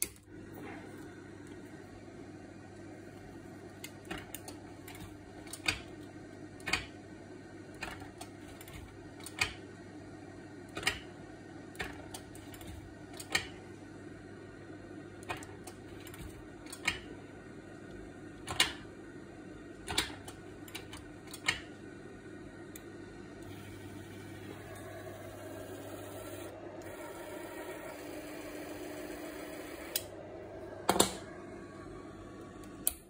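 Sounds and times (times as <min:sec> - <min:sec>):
projector cooling fan hum: 0:00.0 - 0:33.0
slide-change mechanism clacking: 0:03.8 - 0:06.0, 0:07.8 - 0:09.6, 0:15.2 - 0:17.1, 0:19.8 - 0:21.7.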